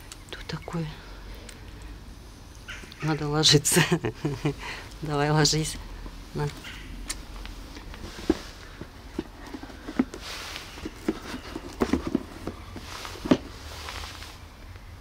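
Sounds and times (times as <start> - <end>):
cardboard box knocks and rustling: 10.8 - 13.6.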